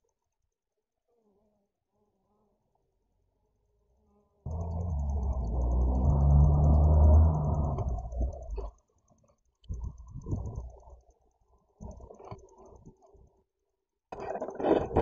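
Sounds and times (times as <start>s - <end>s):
bees buzzing hum: 4.0s - 8.8s.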